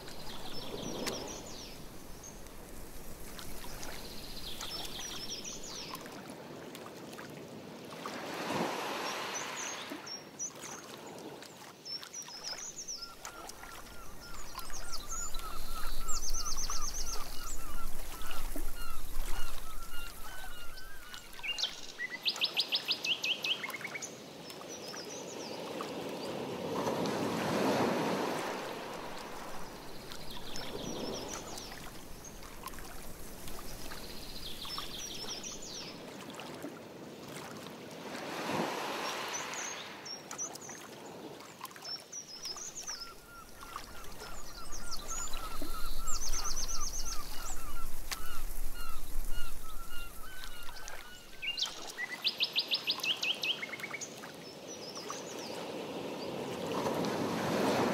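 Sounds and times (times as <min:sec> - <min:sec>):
paddle swishing through water: 0:00.0 - 0:22.1, 0:25.8 - 0:52.2, 0:55.1 - 0:57.9
songbirds trilling: 0:12.8 - 0:22.2, 0:42.6 - 0:52.8.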